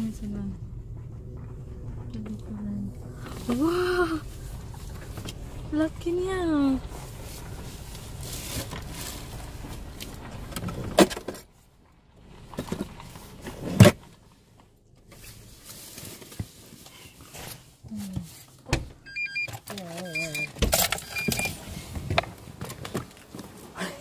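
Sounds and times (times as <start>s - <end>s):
car cabin rumble: 0.0s - 15.6s.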